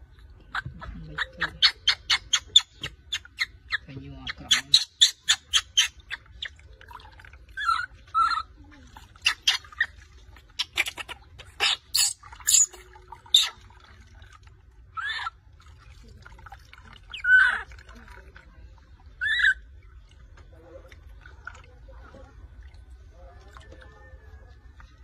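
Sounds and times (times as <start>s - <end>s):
baby monkey crying and screaming: 0.5s - 6.6s, 7.5s - 13.6s, 14.9s - 15.4s, 17.1s - 17.8s, 19.2s - 19.7s.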